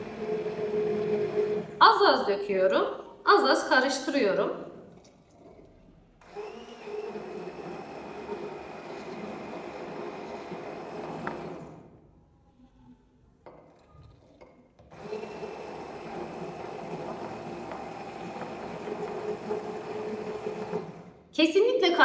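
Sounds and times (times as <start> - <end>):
stick blender running in glass jar: 0.0 - 1.8, 6.2 - 11.8, 14.1 - 21.2.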